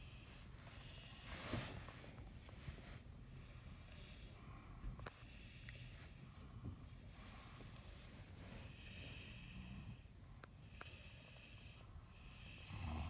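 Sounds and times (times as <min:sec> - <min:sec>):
child snoring softly: 0:08.6 - 0:13.0.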